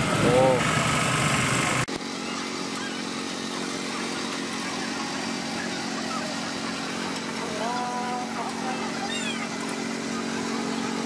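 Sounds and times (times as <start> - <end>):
low machine hum: 0.0 - 11.0
faint crowd chatter: 2.1 - 11.0.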